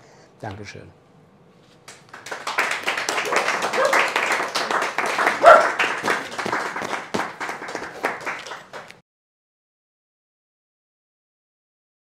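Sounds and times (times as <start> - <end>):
hand clapping: 1.8 - 9.0.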